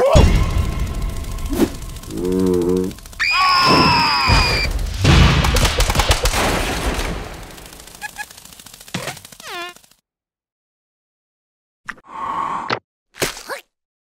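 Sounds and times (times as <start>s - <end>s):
rapid volley of sharp hits: 0.0s - 9.4s
high-pitched falling cartoon yelp: 3.2s - 4.7s
squeaky falling cry: 3.2s - 4.7s.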